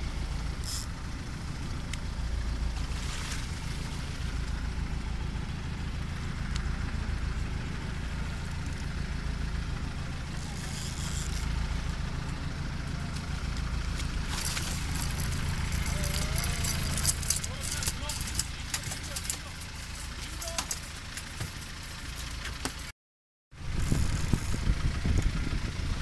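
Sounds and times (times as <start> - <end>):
boat engine idling: 0.0 - 22.9, 23.6 - 26.0
water splashing against hull: 2.7 - 4.7, 13.6 - 20.2.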